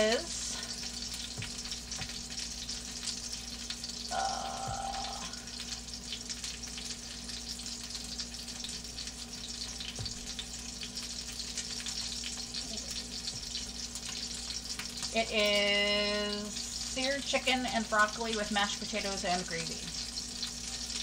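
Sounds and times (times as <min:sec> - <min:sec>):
burger patties sizzling: 0:00.0 - 0:21.0.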